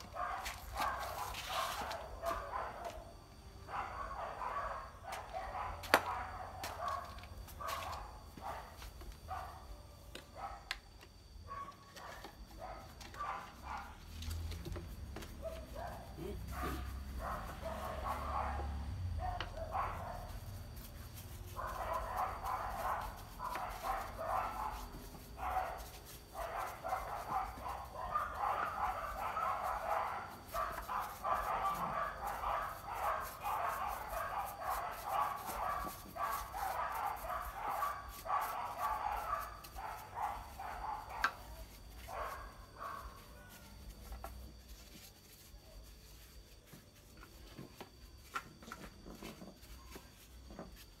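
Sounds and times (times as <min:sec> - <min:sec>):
brush scrubbing wood: 0:20.0 - 0:48.3.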